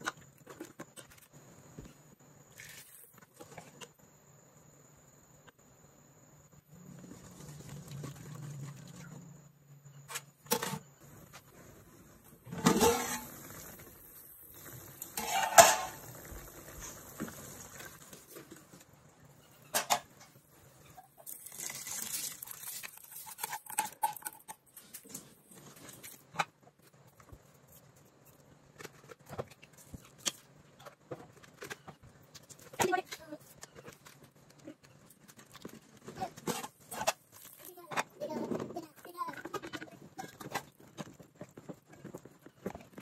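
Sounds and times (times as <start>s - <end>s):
rice poured pattering hiss: 12.4s - 18.8s, 21.2s - 23.8s
wooden spoon scraping a pot: 15.1s - 16.0s.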